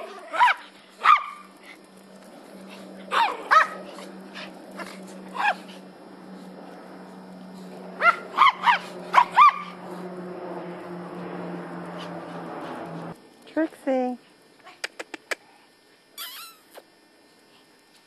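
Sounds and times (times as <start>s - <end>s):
small dogs barking: 0.0s - 1.7s, 2.6s - 5.9s, 7.9s - 10.0s.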